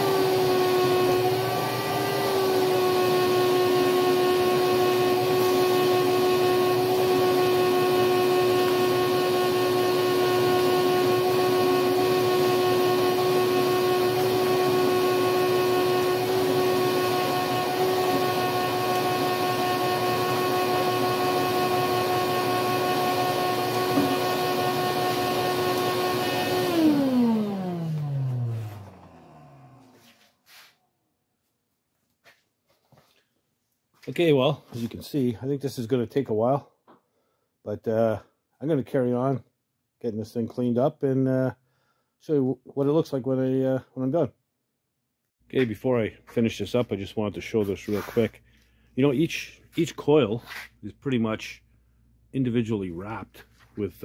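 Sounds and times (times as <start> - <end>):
shop vacuum running: 0.0 - 30.7, 46.4 - 48.4, 49.0 - 51.7.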